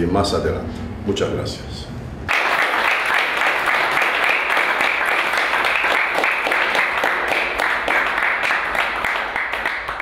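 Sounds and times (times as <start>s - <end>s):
people applauding: 2.3s - 10.0s.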